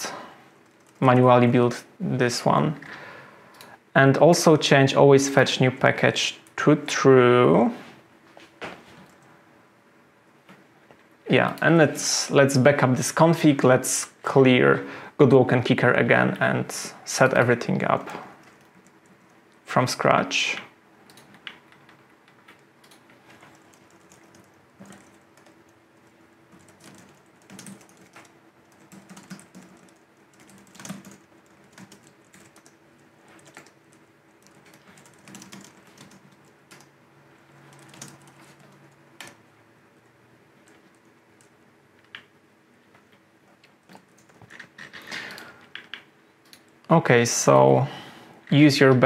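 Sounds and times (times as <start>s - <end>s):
low steady hum: 0.0s - 49.0s
computer keyboard typing: 0.6s - 1.2s, 18.4s - 19.3s, 21.1s - 36.9s, 37.6s - 39.4s, 43.8s - 46.7s.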